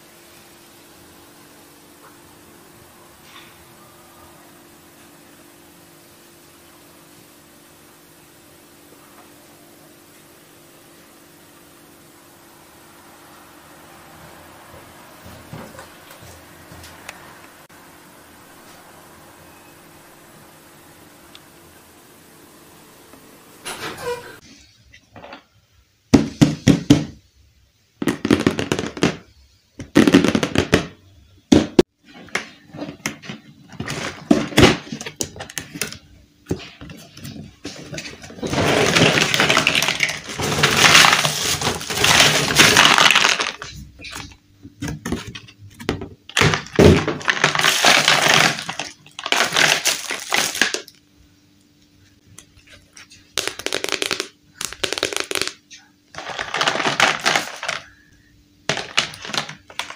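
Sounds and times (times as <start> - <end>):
pieces being set down: 36.5 - 50.9, 56.2 - 58.0, 58.7 - 59.9
cardboard rubbing and rustling: 36.6 - 44.3
plastic pieces clacking: 38.3 - 44.3, 46.3 - 51.0, 53.4 - 58.1, 58.7 - 59.9.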